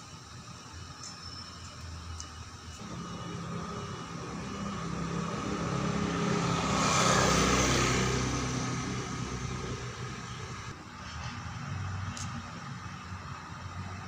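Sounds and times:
vehicle driving past: 2.8 - 12.0.

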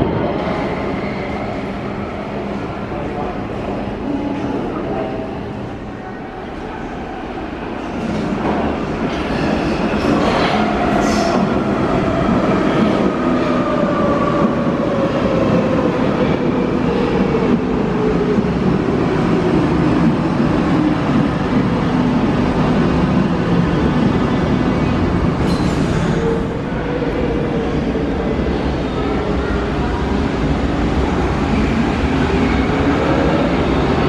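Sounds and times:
underground train arriving: 0.0 - 34.0.

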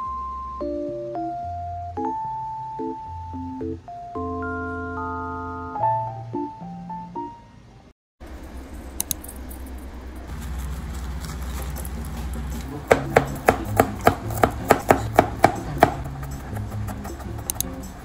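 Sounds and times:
knife chopping on plastic board: 12.9 - 17.5.

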